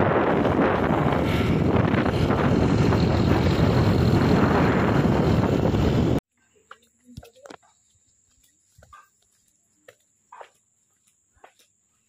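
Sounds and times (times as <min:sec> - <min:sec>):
wind rushing over microphone: 0:00.0 - 0:06.2.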